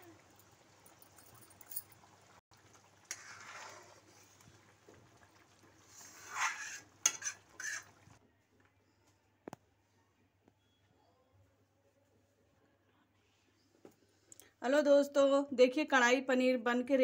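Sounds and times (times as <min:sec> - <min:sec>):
metal spoon scraping a pan: 0:03.1 - 0:04.3, 0:05.8 - 0:08.2.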